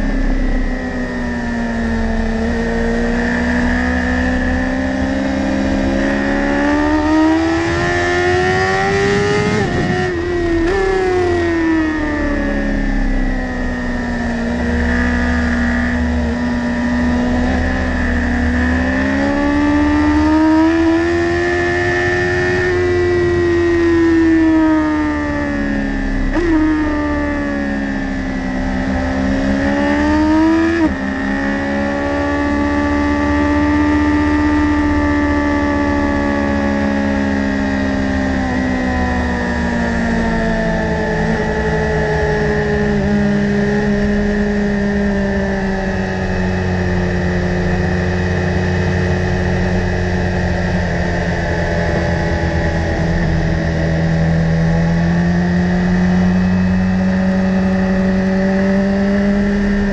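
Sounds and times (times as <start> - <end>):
motorcycle engine at high revs: 0.0 - 59.9
wind rush: 8.2 - 10.6.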